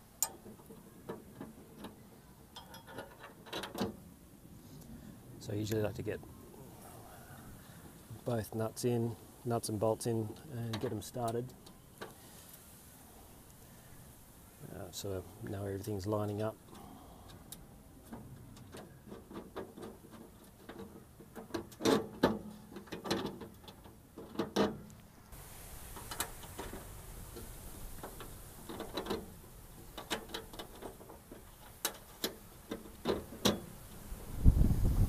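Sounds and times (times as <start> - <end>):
metal bolts clicking: 0.2 - 4.0.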